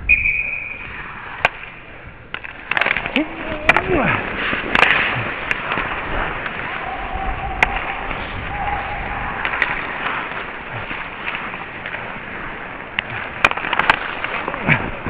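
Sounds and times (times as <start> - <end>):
hockey sticks striking puck: 0.1 - 15.0
skate blades scraping on ice: 0.7 - 15.0
wind on microphone: 3.4 - 13.4.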